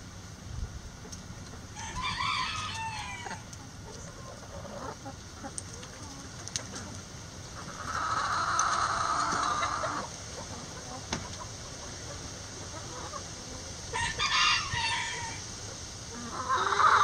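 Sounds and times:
hen clucking: 1.0s - 15.5s, 16.1s - 17.0s
rooster crowing: 1.8s - 3.4s, 14.0s - 15.5s.

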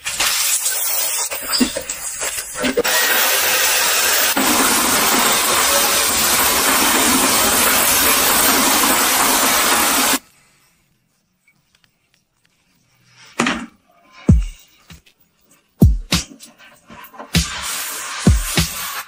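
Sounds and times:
loud rushing hiss: 17.4s - 19.0s.

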